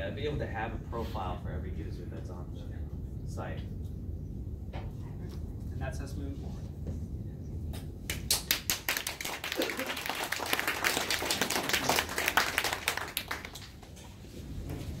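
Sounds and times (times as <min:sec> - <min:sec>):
audience clapping: 0:08.1 - 0:14.0.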